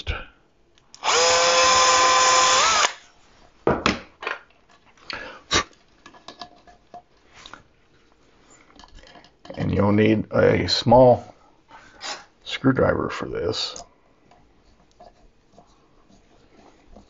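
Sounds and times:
power drill whining: 1.0 - 3.0.

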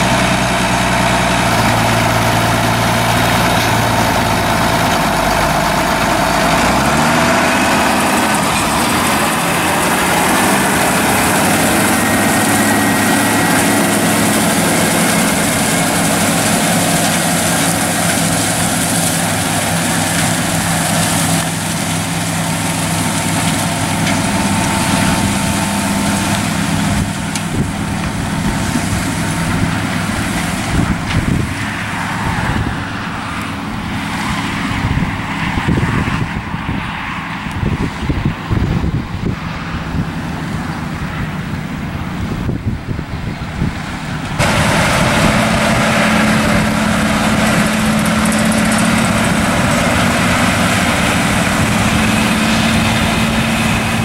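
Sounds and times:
diesel tractor engine under load: 0.0 - 54.0.

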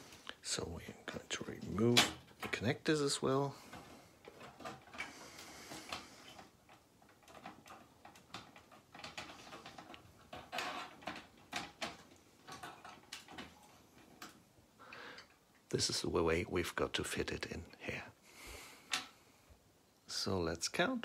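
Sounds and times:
cable connectors clicking and scraping: 1.1 - 15.7.

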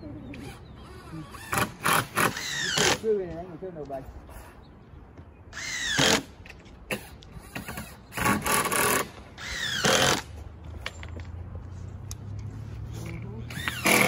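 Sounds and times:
cordless drill driving screws: 5.6 - 6.3, 6.9 - 10.3, 13.5 - 14.0.

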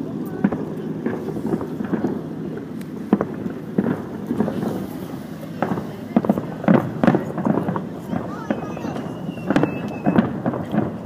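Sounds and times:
distant fireworks popping: 0.0 - 11.0
low background rumble: 0.0 - 11.0.

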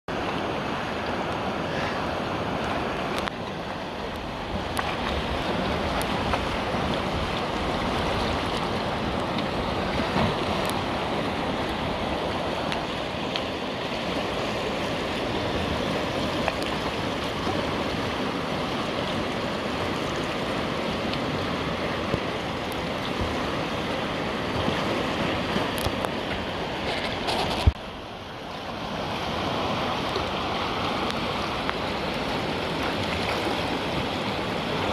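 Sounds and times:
whitewater rapids rushing: 0.1 - 34.9
wind on microphone: 14.0 - 28.1.

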